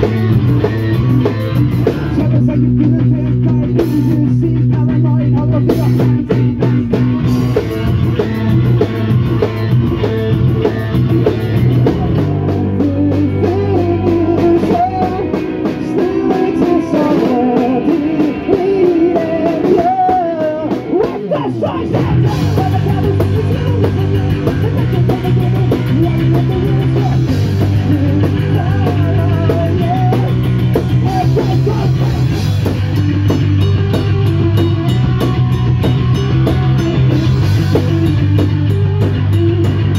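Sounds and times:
punk rock band playing: 0.0 - 39.9
person singing: 1.6 - 6.9, 11.6 - 32.8.

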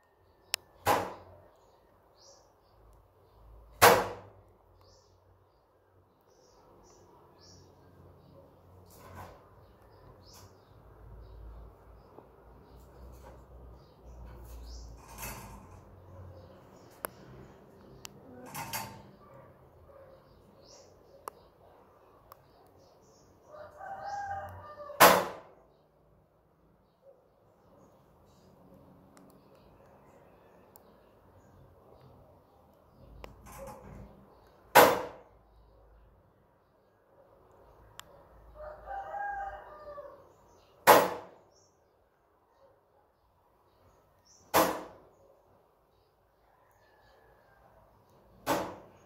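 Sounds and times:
distant rooster crowing: 23.4 - 25.6, 38.5 - 40.4, 46.4 - 48.9
loud bang with wire cage rattle: 25.0 - 25.5, 40.8 - 41.4, 48.4 - 49.0.

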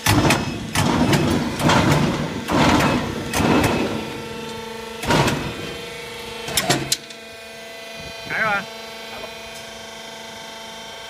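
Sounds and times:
loud metal clanks: 0.0 - 7.1
machine motor hum: 0.0 - 11.0.

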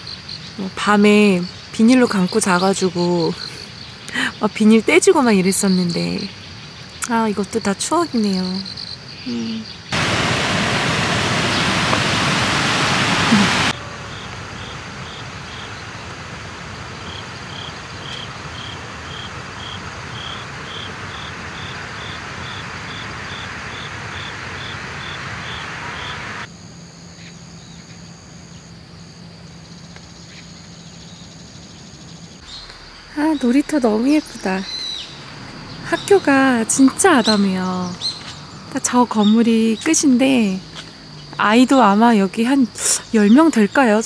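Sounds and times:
insect chirping: 0.0 - 44.0
soft outdoor hush: 0.0 - 44.0
loud rushing noise: 10.0 - 13.8.

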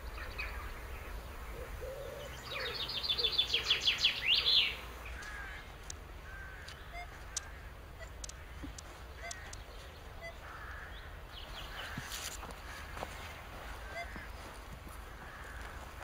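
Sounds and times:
songbird singing high notes: 1.9 - 5.3.

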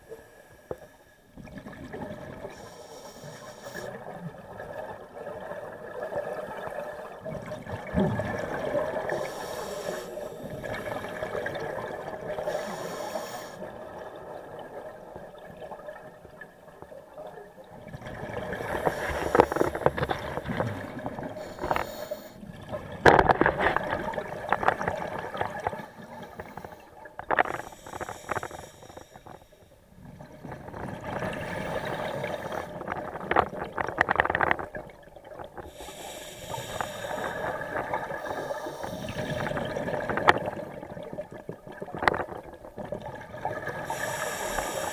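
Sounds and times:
exhaled bubbles crackling: 1.4 - 44.9
regulator hissing in-breaths: 2.5 - 4.0, 9.1 - 10.5, 12.4 - 13.7, 18.8 - 20.0, 21.4 - 22.4, 26.5 - 29.8, 35.6 - 39.5, 43.8 - 44.9.

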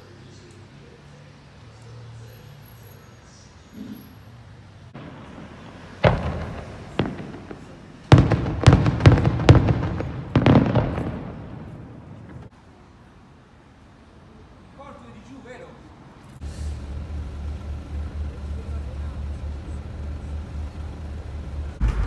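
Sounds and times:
fireworks bangs echoing: 5.0 - 12.5, 21.6 - 22.0.

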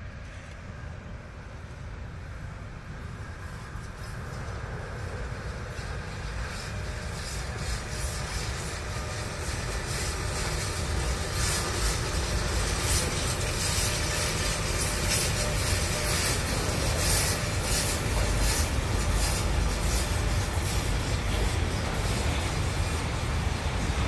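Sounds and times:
train wheels rumbling on rails: 0.0 - 24.0
high rushing hiss: 3.2 - 24.0.

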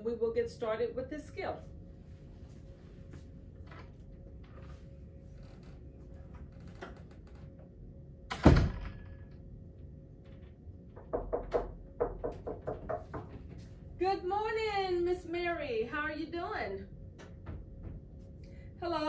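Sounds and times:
low room noise: 0.0 - 19.0
door thudding shut: 8.3 - 9.1.

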